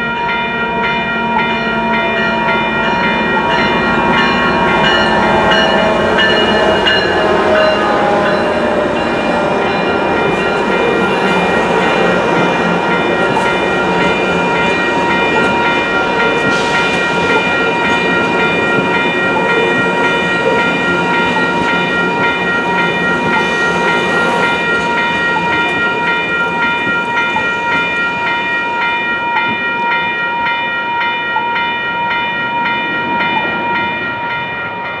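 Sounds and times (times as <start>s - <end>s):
crossing warning bell ringing: 0.0s - 35.0s
train rumble: 0.0s - 35.0s.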